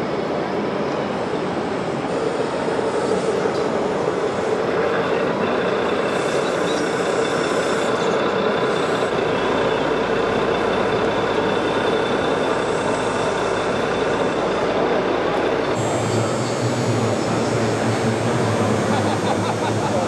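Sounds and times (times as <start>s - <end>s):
model tractors running: 4.7s - 20.0s.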